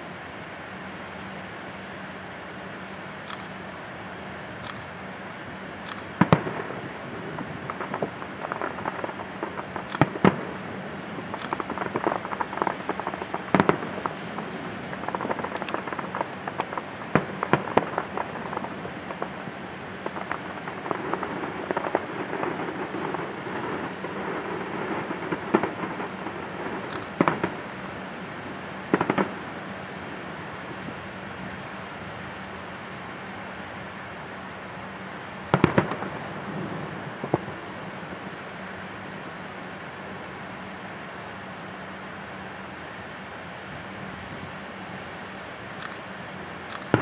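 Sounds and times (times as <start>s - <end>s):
fireworks crackling: 0.0s - 47.0s
fireworks bangs: 6.1s - 38.8s, 46.7s - 47.0s.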